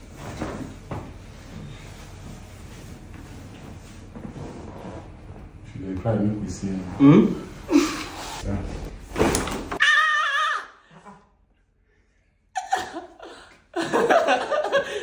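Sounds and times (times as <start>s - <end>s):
man laughing: 12.6s - 15.0s.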